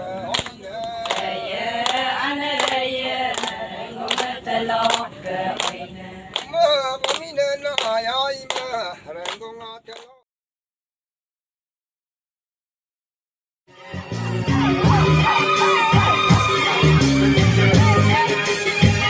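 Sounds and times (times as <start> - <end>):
women's chorus singing: 1.1 - 6.5.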